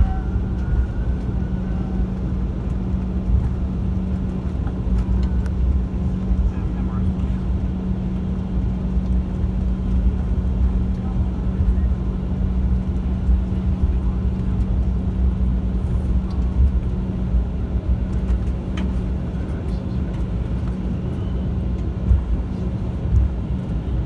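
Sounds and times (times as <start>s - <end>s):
jet engines idling drone: 0.0s - 24.0s
wheels rumbling on taxiway: 0.0s - 24.0s.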